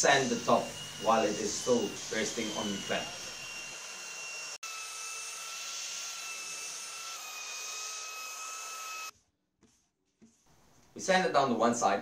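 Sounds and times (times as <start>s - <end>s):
electric belt sander whining: 0.0s - 9.1s.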